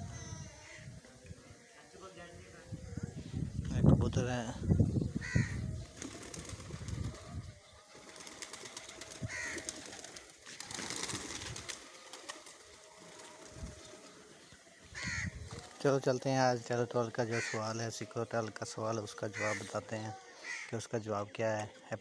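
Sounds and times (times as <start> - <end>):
pigeons cooing: 5.1 - 15.8.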